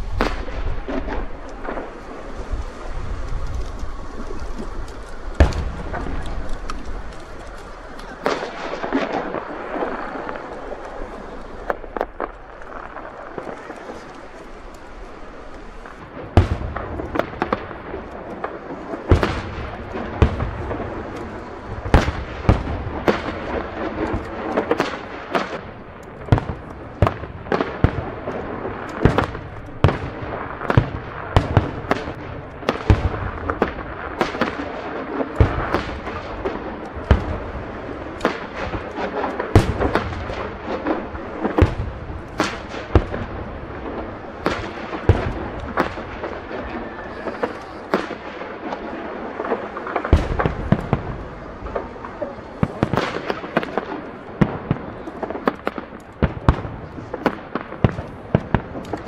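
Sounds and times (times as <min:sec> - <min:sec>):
firework crackling hiss: 0:00.0 - 0:59.0
firework shells bursting: 0:00.0 - 0:59.0.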